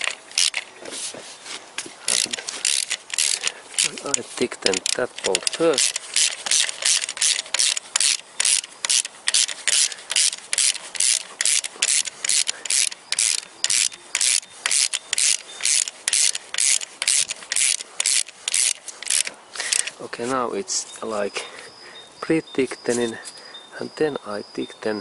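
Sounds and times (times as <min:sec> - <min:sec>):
ratchet wrench rasping: 0:00.0 - 0:00.6, 0:02.1 - 0:19.9.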